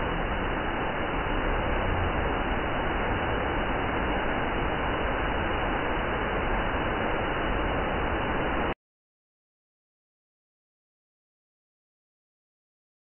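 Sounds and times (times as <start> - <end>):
waterfall roaring: 0.0 - 8.8.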